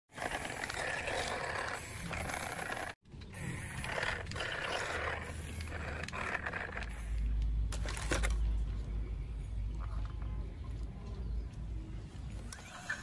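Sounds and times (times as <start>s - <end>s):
toy gear motor whirring: 0.1s - 7.4s.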